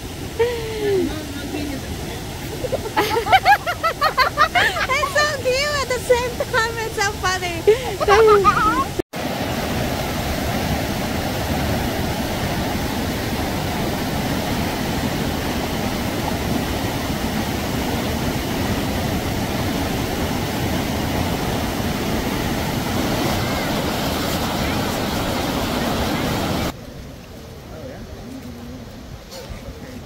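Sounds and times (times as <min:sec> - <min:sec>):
stream water rushing: 0:00.0 - 0:30.0.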